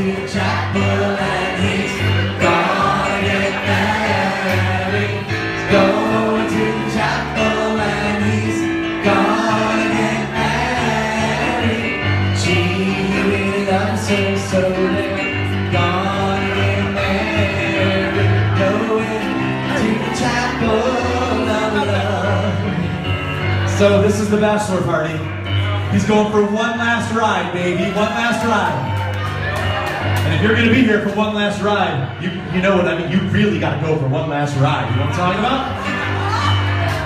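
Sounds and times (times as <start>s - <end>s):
several voices singing together: 0.0s - 15.1s, 15.7s - 22.8s
piano playing: 0.0s - 37.0s.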